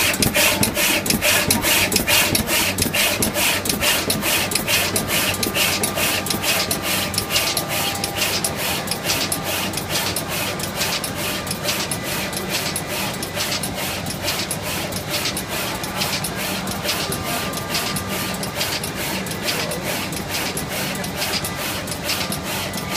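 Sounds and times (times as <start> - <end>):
rapid machine clicks: 0.0 - 22.9
steady machine hum: 0.0 - 22.9.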